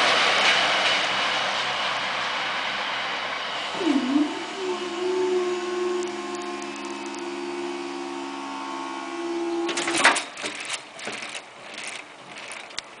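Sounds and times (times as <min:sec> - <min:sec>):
barrier drive humming: 0:03.7 - 0:13.0
rustles: 0:09.7 - 0:13.0.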